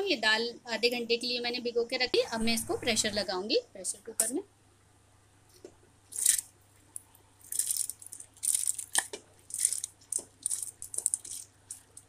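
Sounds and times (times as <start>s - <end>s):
lentils pattering on metal: 7.4s - 12.0s.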